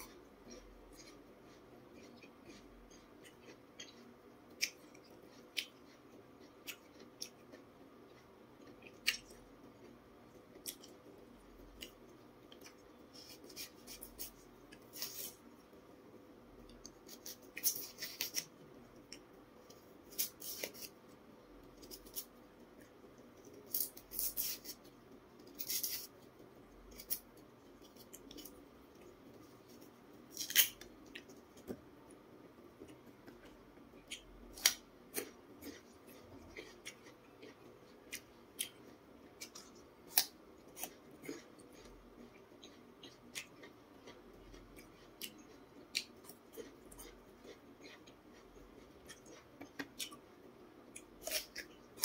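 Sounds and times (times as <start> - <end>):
knife scraping vegetable skin: 17.1 - 18.4, 20.1 - 20.9, 23.7 - 24.8, 25.6 - 26.1.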